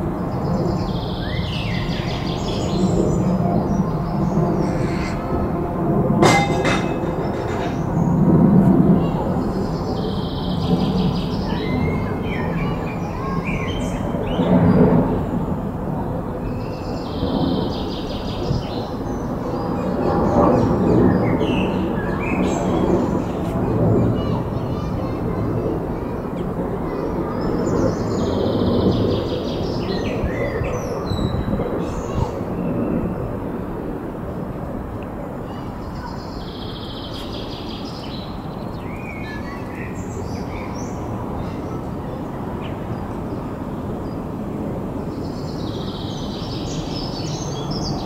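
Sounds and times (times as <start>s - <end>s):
small birds singing: 0.0s - 5.6s, 6.2s - 15.3s, 15.9s - 33.5s, 35.5s - 48.0s
small birds chirping: 35.5s - 44.4s.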